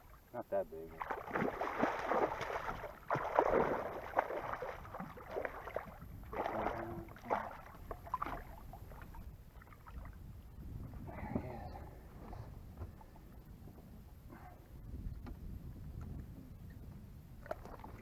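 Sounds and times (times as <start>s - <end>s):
fish splashing in water: 1.0s - 10.1s.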